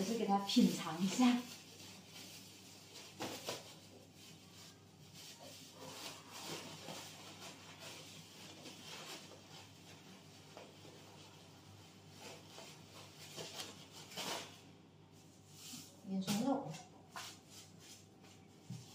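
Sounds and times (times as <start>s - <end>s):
plastic bag crinkling: 0.0s - 14.7s.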